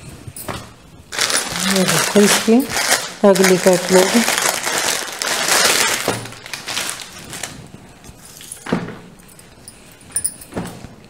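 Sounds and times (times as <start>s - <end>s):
plastic bag crinkling: 1.1s - 8.6s.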